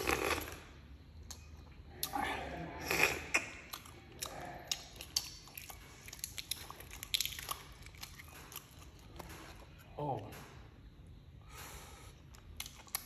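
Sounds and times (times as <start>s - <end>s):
person chewing crunchy food: 0.0s - 2.2s, 2.8s - 9.9s, 12.1s - 13.0s.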